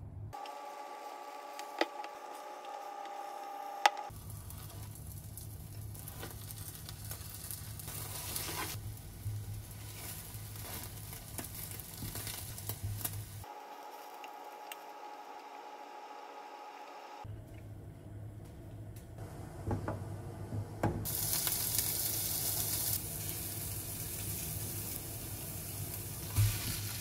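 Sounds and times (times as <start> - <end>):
food sizzling in a pan: 2.2 - 17.1, 21.0 - 27.0.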